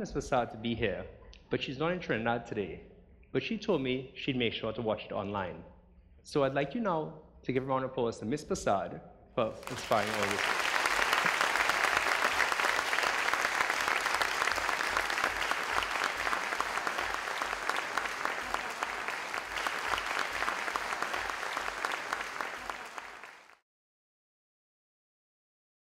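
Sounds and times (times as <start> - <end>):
audience applauding: 9.5 - 23.6.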